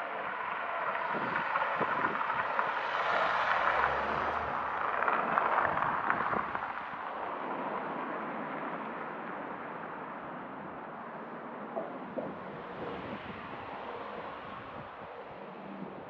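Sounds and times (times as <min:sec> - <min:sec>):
car driving past: 0:02.5 - 0:06.5.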